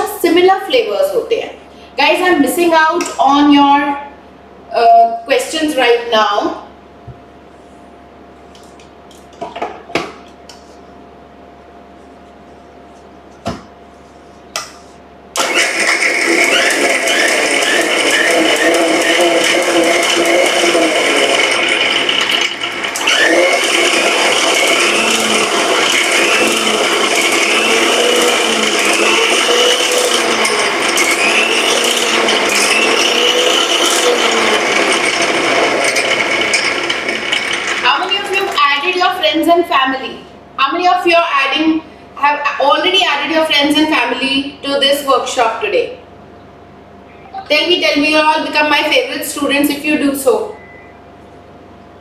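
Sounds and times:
mixer grinder running: 15.3 - 39.5
ice rattling in blender jar: 15.6 - 38.6.

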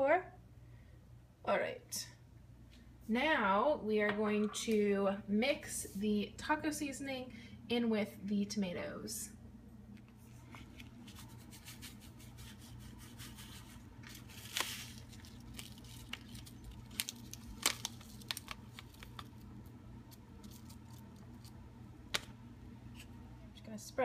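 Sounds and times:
seasoning packet crinkling: 10.6 - 22.3
light crackles: 14.0 - 22.3.

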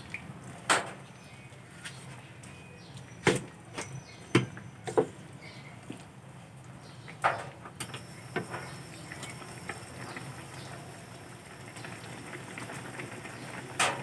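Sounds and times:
gas burner hiss: 7.8 - 14.0.

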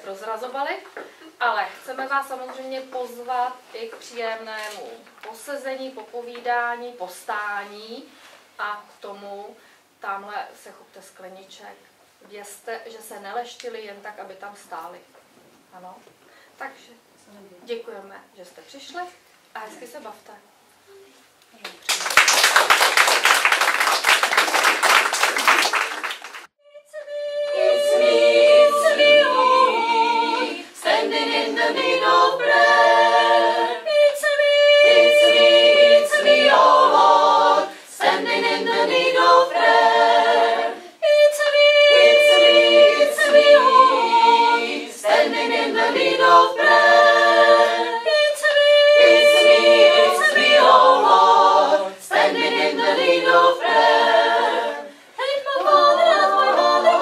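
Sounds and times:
women's choir singing: 26.6 - 57.0.

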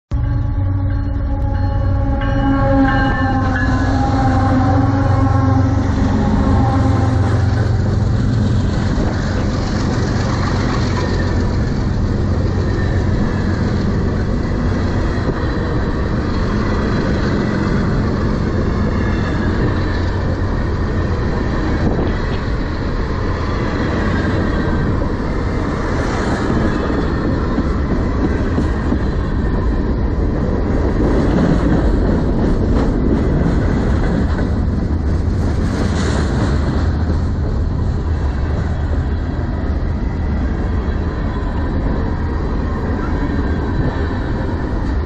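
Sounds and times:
locomotive engine drone: 0.1 - 45.0
train wheels on rail: 0.2 - 45.0.

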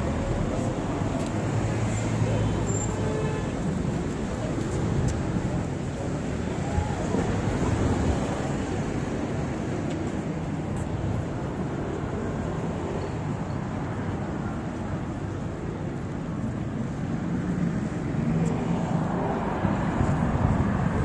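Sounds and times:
passing cars: 0.0 - 21.0.

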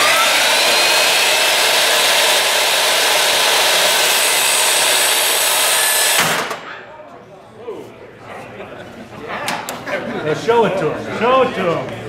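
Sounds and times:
table saw motor whining: 0.0 - 6.6.

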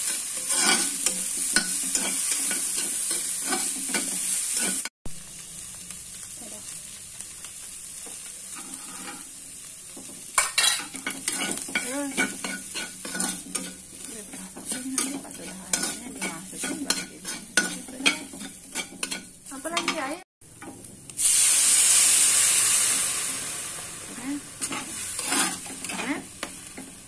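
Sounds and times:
metal spatula scraping a wok: 0.0 - 4.9, 8.2 - 9.4, 10.0 - 20.1, 24.2 - 27.0
food sizzling in hot oil: 0.0 - 27.0.

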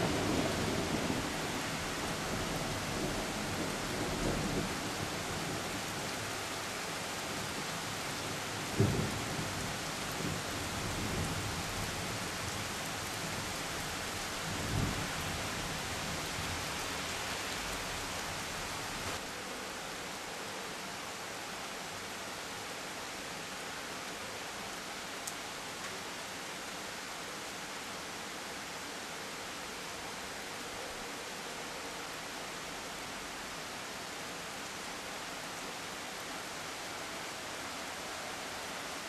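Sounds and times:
rain hissing: 11.0 - 19.2.

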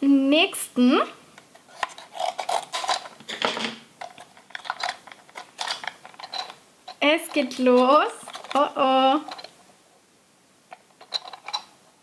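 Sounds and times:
packaging rustling: 1.6 - 6.5.

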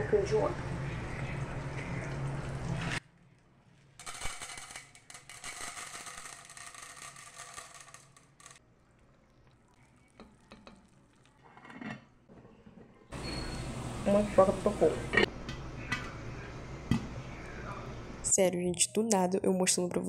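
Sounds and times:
faint sizzle: 0.0 - 3.0, 8.7 - 11.8, 13.2 - 18.2
popcorn kernels rattling into pot: 4.0 - 8.6.

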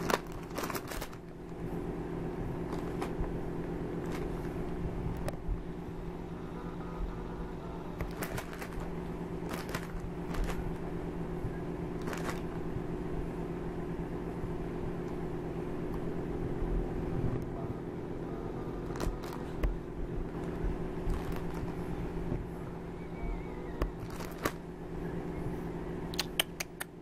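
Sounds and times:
low mechanical hum: 0.0 - 27.0
short clicks and rustles: 8.0 - 10.9, 12.0 - 12.6, 18.9 - 21.8, 23.8 - 24.6.

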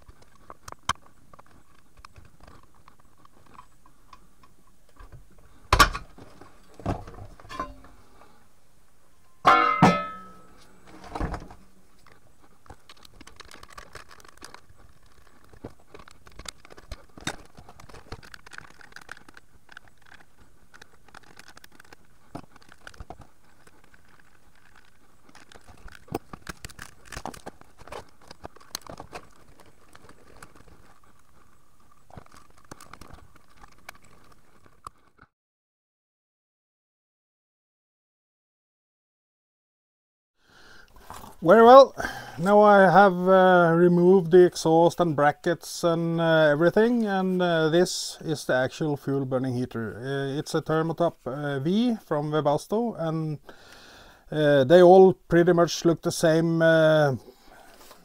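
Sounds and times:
metal parts and tools clinking: 7.4 - 8.0, 9.3 - 11.4
ringing metallic clatter: 9.4 - 10.6.

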